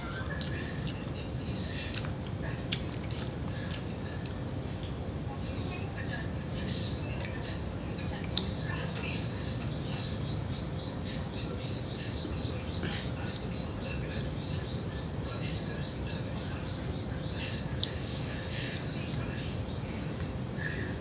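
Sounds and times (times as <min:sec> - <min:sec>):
low background noise: 0:00.0 - 0:21.0.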